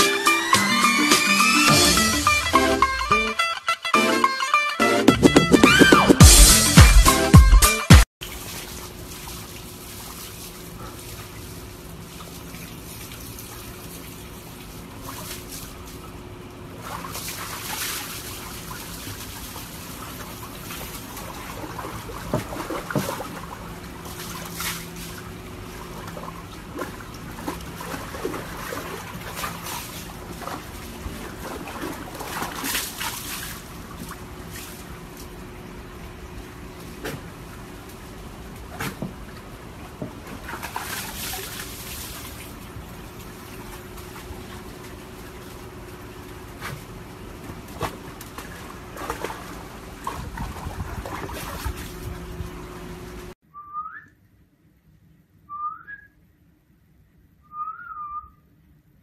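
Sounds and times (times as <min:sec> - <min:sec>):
brief music: 0:00.0 - 0:08.0
water splashing in a plastic tub: 0:08.2 - 0:53.3.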